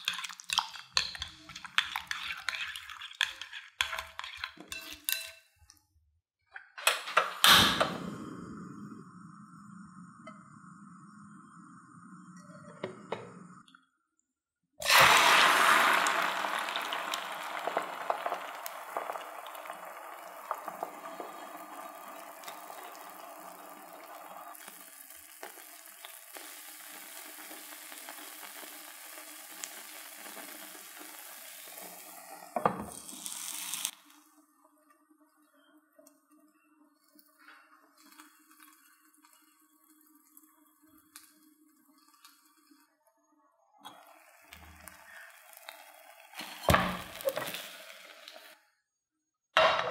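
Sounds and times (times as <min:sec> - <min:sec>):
food sizzling in oil: 0:00.0 - 0:05.3, 0:14.8 - 0:34.2, 0:44.0 - 0:48.6
spatula scraping and clicking: 0:00.0 - 0:05.5.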